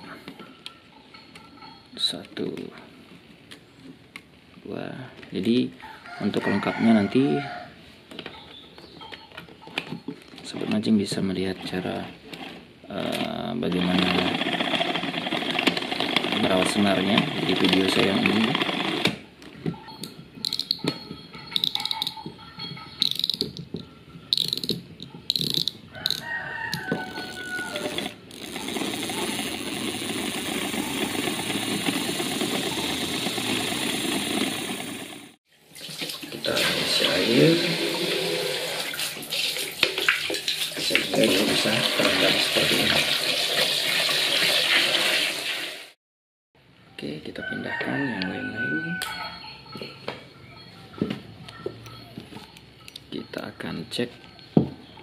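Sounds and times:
handling clicks and knocks: 15.2s - 28.2s
ratcheting clicks: 20.4s - 20.9s, 21.5s - 22.2s, 23.0s - 35.3s
small motor whine: 26.8s - 35.4s
hose water gushing into bucket: 27.1s - 46.0s.

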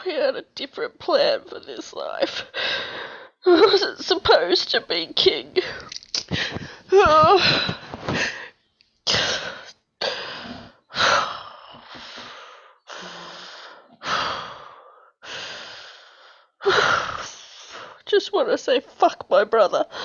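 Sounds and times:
woman sobbing: 1.9s - 4.2s, 5.4s - 8.5s, 16.6s - 17.3s
heavy gasping breaths: 2.3s - 3.4s, 5.6s - 18.0s.

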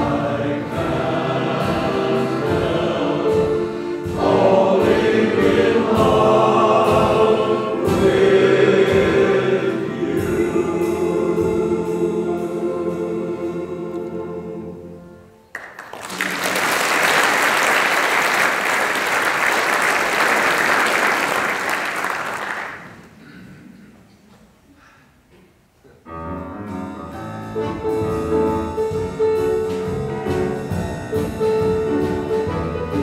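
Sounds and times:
male choir singing: 0.0s - 15.1s
audience applause: 15.5s - 23.1s.

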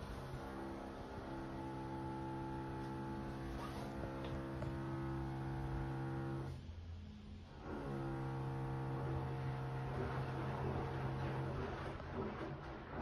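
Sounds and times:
washing machine motor humming: 0.0s - 6.6s, 7.5s - 13.0s
water and laundry swishing: 3.3s - 4.2s, 9.6s - 13.0s.

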